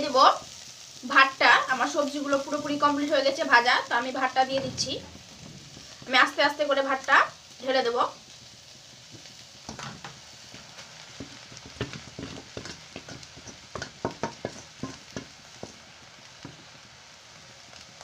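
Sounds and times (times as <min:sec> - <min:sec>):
low sizzle of frying: 0:00.0 - 0:18.0
utensils tapping against a pan: 0:11.2 - 0:16.6.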